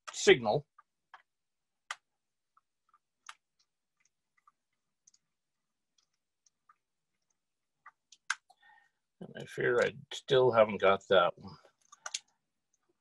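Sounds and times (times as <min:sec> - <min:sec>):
light clicks of wires and plastic: 0:11.7 - 0:12.4.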